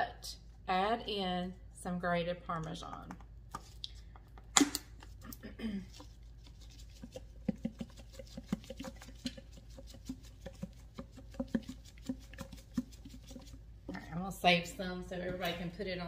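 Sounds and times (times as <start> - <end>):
cheese shaker ticks and taps: 5.9 - 14.0.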